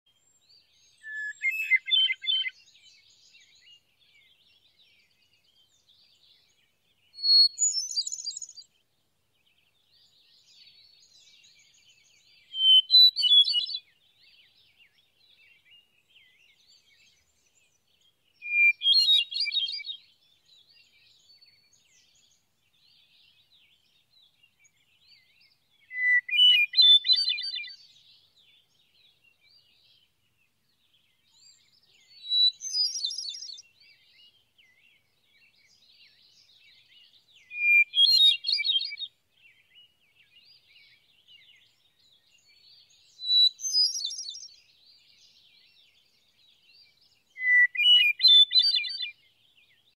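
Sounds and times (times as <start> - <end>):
thrush singing whistled phrases: 1.0 - 2.6, 12.5 - 13.8, 18.4 - 20.0, 25.9 - 27.8, 37.5 - 39.1, 47.4 - 49.1.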